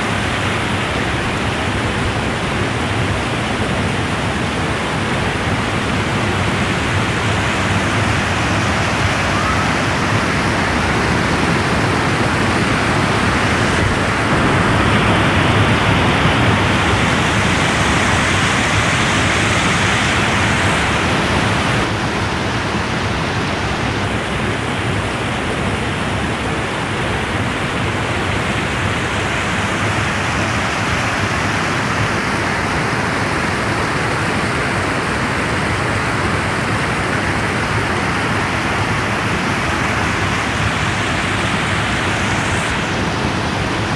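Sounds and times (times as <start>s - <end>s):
stream rushing over boulders: 0.0s - 43.9s.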